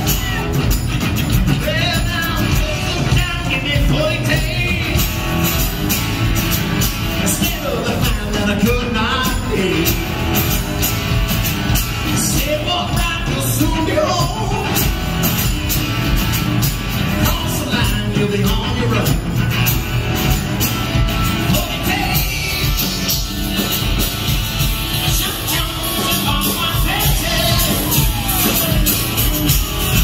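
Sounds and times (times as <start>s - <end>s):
bass guitar: 0.0s - 30.0s
drums steady beat: 0.0s - 30.0s
electric guitars: 0.0s - 30.0s.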